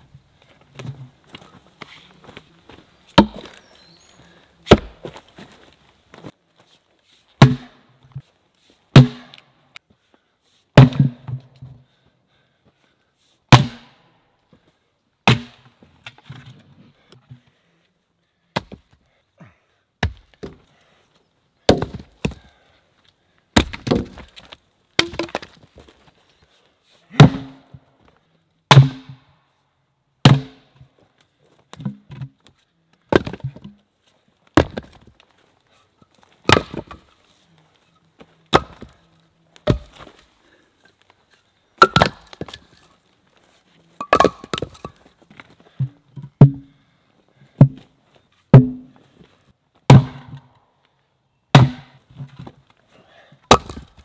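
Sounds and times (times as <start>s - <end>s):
axe cracking into wood: 4.7s - 5.0s, 23.6s - 25.6s, 28.7s - 29.2s, 36.5s - 37.0s, 38.5s - 39.0s, 39.6s - 40.2s, 41.8s - 42.7s, 51.5s - 52.0s, 53.5s - 54.0s.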